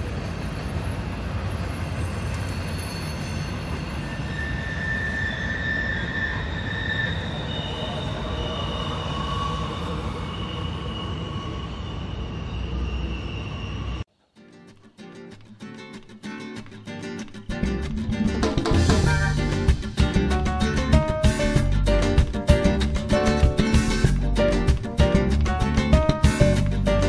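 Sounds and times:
high squealing tones: 2.0 - 14.1.

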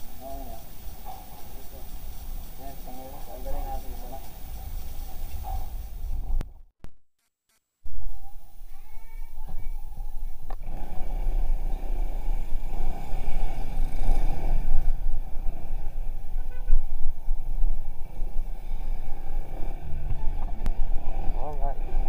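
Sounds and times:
scooter engine and road rumble: 10.6 - 22.0.

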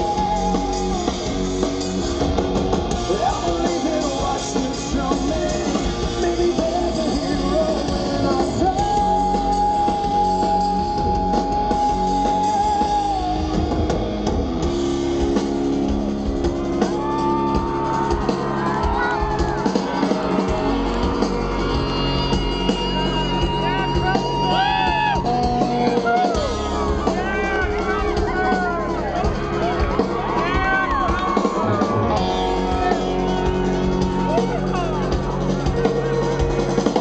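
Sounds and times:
man singing: 0.0 - 1.3, 3.0 - 13.8
drums: 0.0 - 37.0
live rock band: 0.0 - 37.0.

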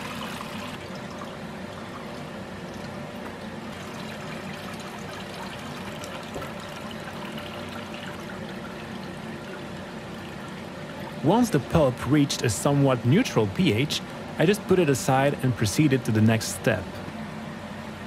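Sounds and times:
steady low hum: 0.0 - 18.0
water trickling through strainer: 3.7 - 11.2.

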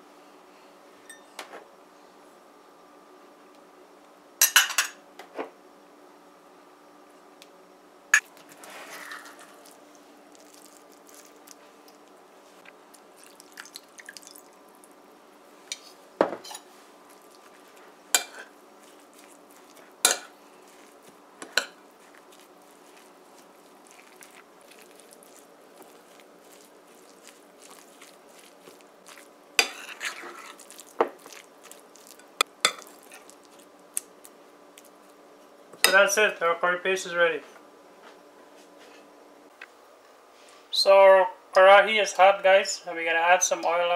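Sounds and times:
faint steady hum: 0.0 - 43.9.

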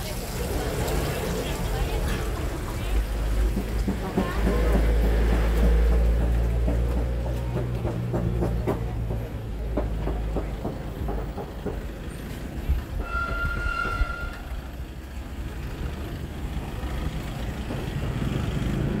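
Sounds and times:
busy eatery rumble: 0.0 - 13.0
passing traffic: 0.0 - 19.0
high-pitched horn toot: 13.0 - 14.6.

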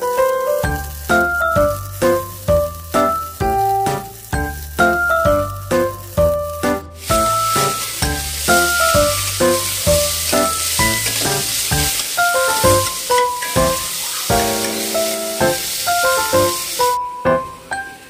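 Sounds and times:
background music: 0.0 - 18.0
vegetables sizzling in oil: 0.0 - 18.0
spatula stirring in pan: 7.0 - 16.4.

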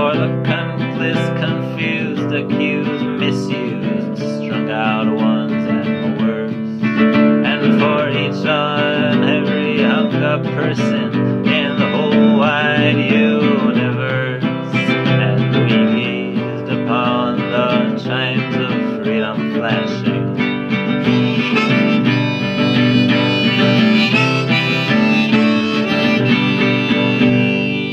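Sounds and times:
acoustic guitar strumming: 0.0 - 27.9
person singing: 0.0 - 27.9
harmonica long notes: 20.2 - 27.9.

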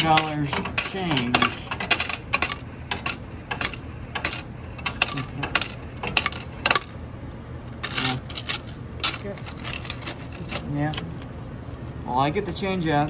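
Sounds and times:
coins clinking in metal cup: 0.0 - 7.0, 7.8 - 11.0.

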